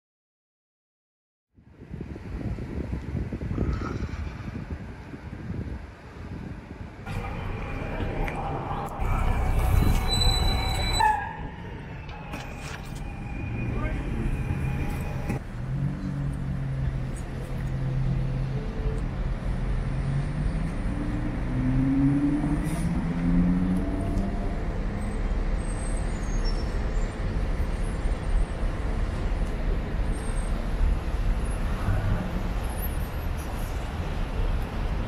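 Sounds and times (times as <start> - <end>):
low rumble of passing vehicles: 1.6 - 35.0
car engine speeding up: 19.8 - 24.7.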